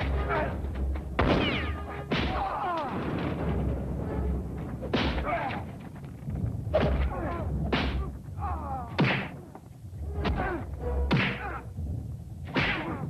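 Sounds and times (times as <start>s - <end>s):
punches and kicks landing: 6.8s - 8.1s, 9.0s - 9.4s, 11.1s - 11.5s.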